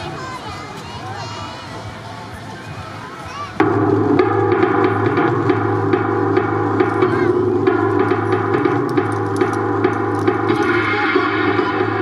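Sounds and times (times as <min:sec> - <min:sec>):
dance music over loudspeakers: 0:03.6 - 0:12.0
steady drum beat: 0:03.6 - 0:12.0.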